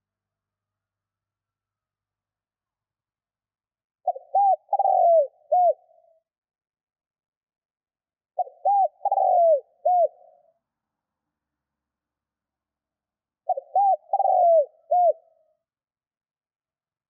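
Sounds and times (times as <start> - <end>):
dove cooing: 4.0 - 6.1, 8.4 - 10.5, 13.4 - 15.4.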